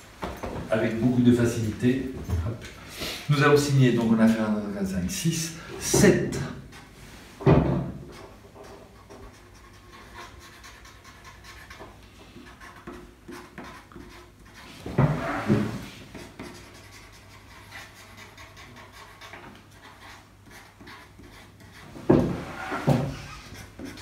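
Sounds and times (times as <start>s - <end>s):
marker pen scratching on paper: 8.1s - 24.0s.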